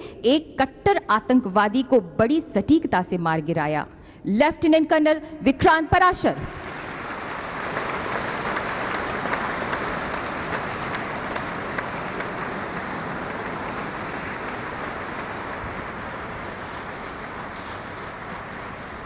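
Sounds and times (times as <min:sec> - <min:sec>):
audience applause: 0:06.5 - 0:19.0.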